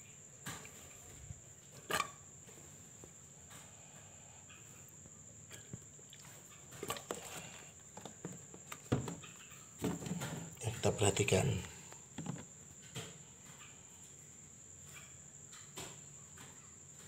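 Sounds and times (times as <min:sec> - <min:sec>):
plastic crate clicks and knocks: 0:08.0 - 0:10.5, 0:12.2 - 0:13.1.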